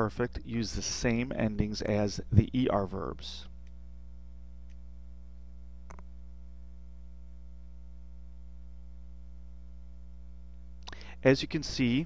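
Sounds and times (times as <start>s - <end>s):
electrical mains hum: 0.0s - 12.0s
faint click: 5.8s - 6.1s, 10.5s - 11.0s.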